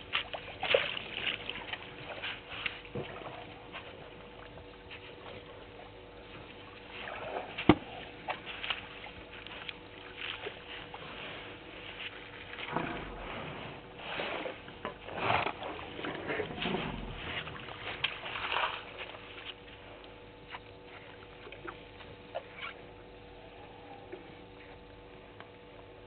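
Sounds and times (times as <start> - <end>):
faint electrical hum: 0.0 - 26.0
elephants rustling in grass: 6.3 - 20.0.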